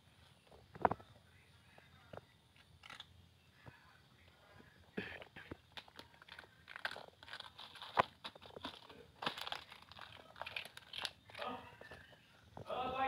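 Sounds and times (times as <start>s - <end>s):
cat crunching food: 2.6s - 3.1s, 5.6s - 11.5s
plastic bag crinkling: 5.6s - 12.1s.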